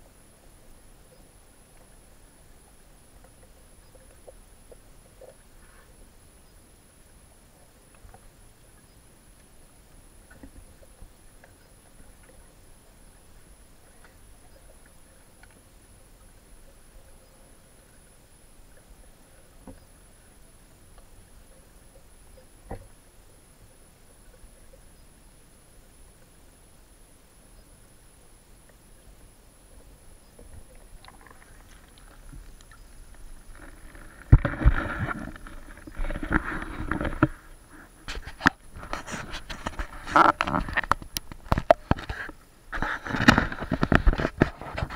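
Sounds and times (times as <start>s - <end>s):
small underwater clicks and ticks: 0.0s - 44.9s
small ticks: 30.2s - 34.4s.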